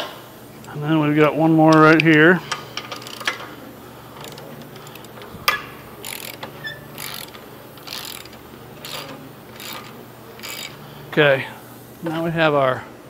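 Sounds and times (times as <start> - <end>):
ratchet wrench rattling: 0.6 - 11.0.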